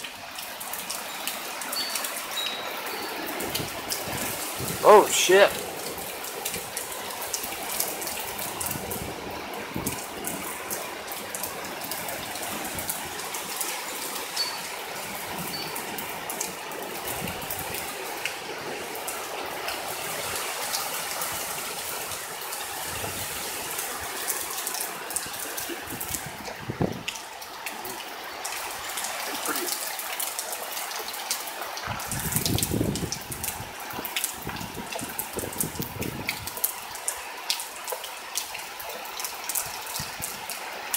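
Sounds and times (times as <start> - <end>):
heavy rain pouring and splattering: 0.0 - 40.9
strong wind: 3.4 - 5.7, 8.2 - 10.6, 22.7 - 24.2, 25.2 - 27.2, 31.8 - 36.6.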